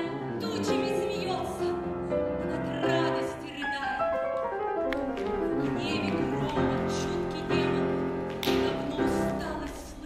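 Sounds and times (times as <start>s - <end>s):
piano accompaniment: 0.0s - 10.0s
person singing: 5.2s - 10.0s.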